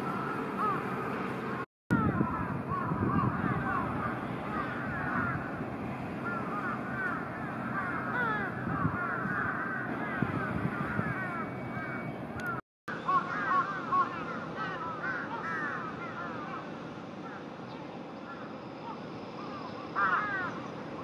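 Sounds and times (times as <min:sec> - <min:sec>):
crows calling: 0:00.0 - 0:01.2, 0:02.0 - 0:20.9
steady low rumble: 0:00.0 - 0:12.6.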